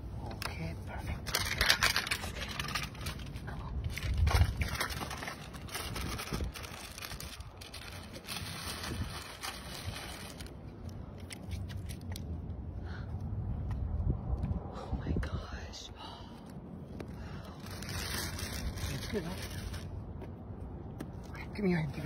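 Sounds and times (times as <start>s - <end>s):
plastic bag crinkling: 1.2s - 12.1s, 17.6s - 19.9s.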